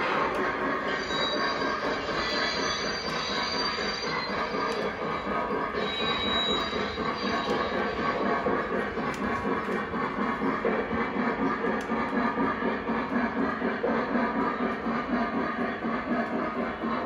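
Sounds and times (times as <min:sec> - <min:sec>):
high wheel squeal: 0:00.0 - 0:08.3
toy train wheels rumbling on rail: 0:00.0 - 0:17.0.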